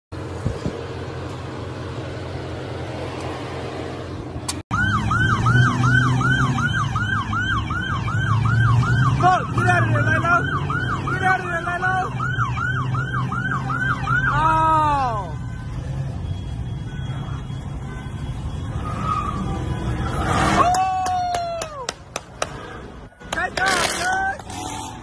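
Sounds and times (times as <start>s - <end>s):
rushing noise with low hum: 0.2s - 4.6s
police siren yelping: 4.7s - 15.6s.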